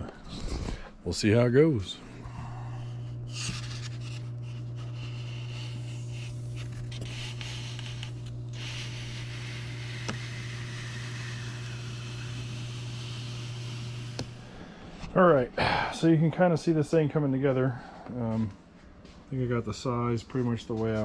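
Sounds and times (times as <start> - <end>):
foam cutter humming: 0.0 - 16.6
foam scraping across table: 3.3 - 14.2.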